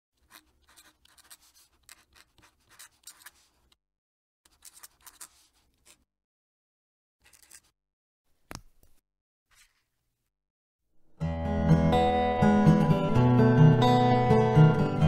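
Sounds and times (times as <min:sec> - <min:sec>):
pen nib scratching paper: 0:00.2 - 0:03.8, 0:04.5 - 0:06.0, 0:07.2 - 0:07.7.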